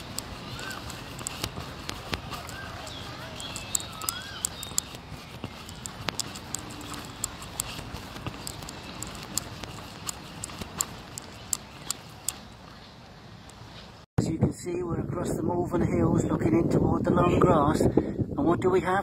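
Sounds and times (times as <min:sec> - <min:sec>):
jogging footsteps on rubber track: 0:00.0 - 0:12.8.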